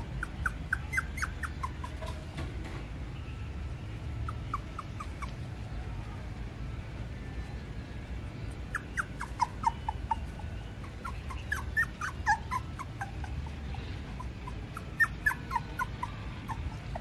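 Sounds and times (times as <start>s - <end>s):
puppy whimpering: 0.0s - 2.3s, 4.2s - 5.5s, 8.5s - 17.0s.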